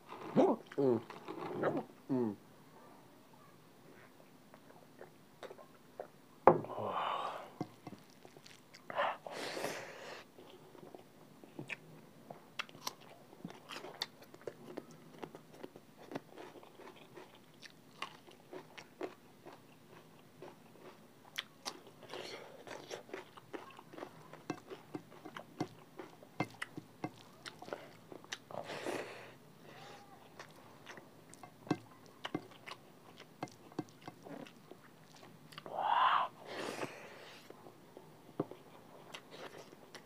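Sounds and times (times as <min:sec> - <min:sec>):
wet chewing: 0:07.6 - 0:08.9, 0:12.6 - 0:28.6, 0:30.2 - 0:35.7
crunching and slurping: 0:07.7 - 0:08.9, 0:12.6 - 0:35.7.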